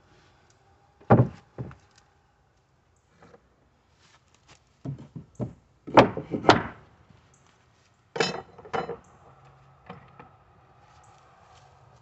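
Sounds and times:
knocks on wooden boards: 1.0 - 1.8, 4.9 - 6.8.

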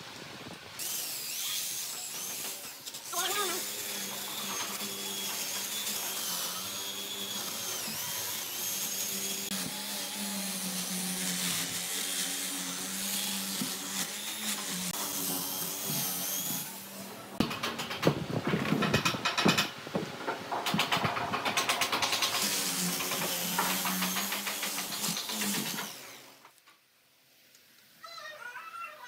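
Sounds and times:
electric drill motor whine: 0.8 - 12.0.

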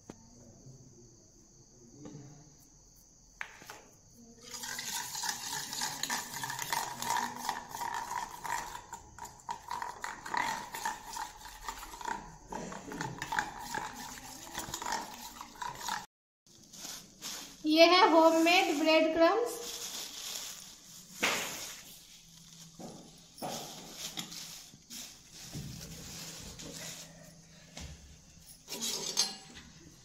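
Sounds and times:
metal spoon scraping bowl: 4.5 - 16.1, 28.5 - 29.6.

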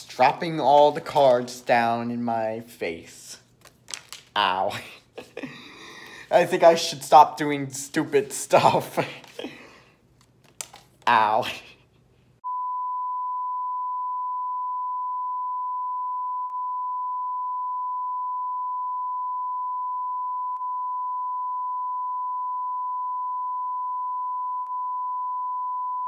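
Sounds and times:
steady test tone beep: 12.4 - 26.0.

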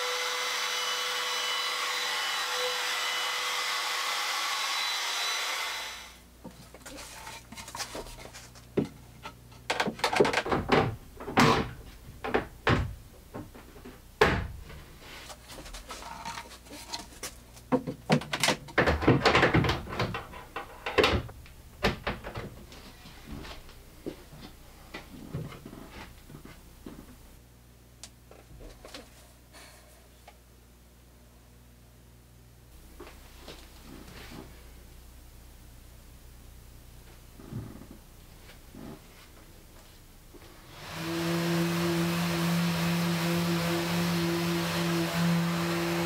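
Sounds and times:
wooden knocks and clunks: 9.6 - 14.8, 17.7 - 22.7.

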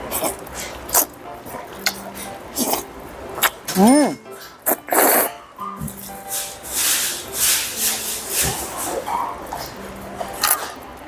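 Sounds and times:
noodles slurped and chewed: 0.0 - 2.0, 2.6 - 2.8, 4.4 - 5.3
soft background music: 0.0 - 11.0.

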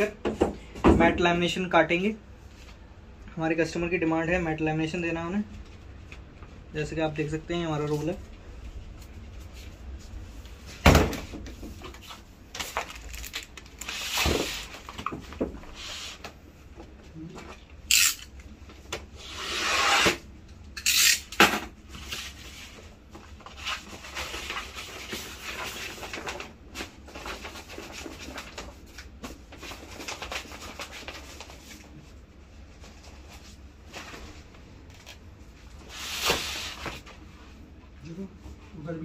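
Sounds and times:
plastic film rustling: 12.0 - 16.2, 22.0 - 37.2
plastic film crackling: 12.6 - 14.1.

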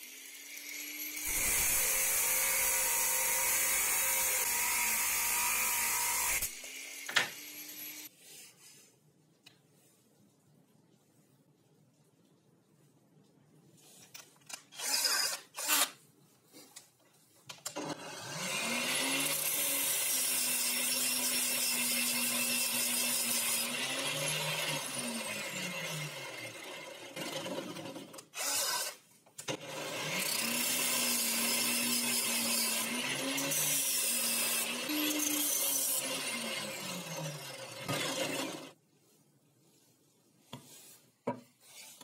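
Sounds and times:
drill motor grinding metal: 0.0 - 8.0.

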